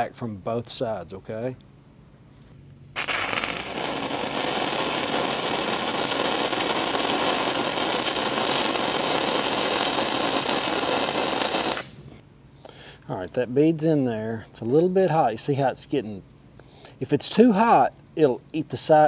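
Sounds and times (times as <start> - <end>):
welding arc crackling: 3.0 - 12.0.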